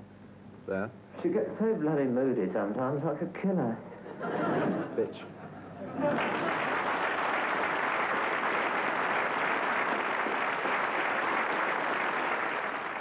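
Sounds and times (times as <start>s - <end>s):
audience applauding: 5.9s - 13.0s.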